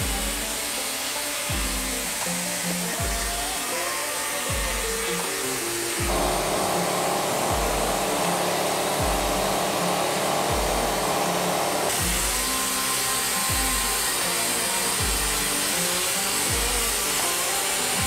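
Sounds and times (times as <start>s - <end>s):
music with deep kick-drum beat: 0.0s - 0.7s, 1.5s - 2.4s, 3.0s - 3.6s, 4.5s - 5.2s, 6.0s - 11.3s, 11.9s - 12.6s, 13.5s - 14.3s, 15.0s - 15.7s, 16.4s - 17.2s
blasting nozzle hissing: 0.0s - 18.0s.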